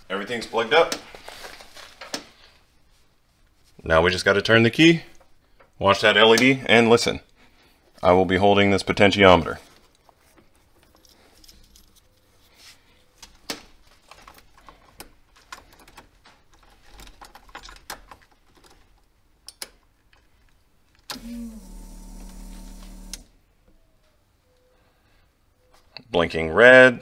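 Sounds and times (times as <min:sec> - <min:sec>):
keys and wires clicking and rattling: 0:09.6 - 0:12.4, 0:13.0 - 0:21.1
low electrical hum: 0:21.1 - 0:23.5.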